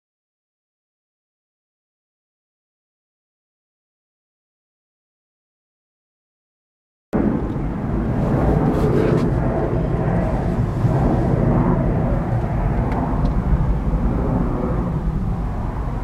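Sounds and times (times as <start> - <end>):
wind buffeting microphone: 7.2 - 16.0.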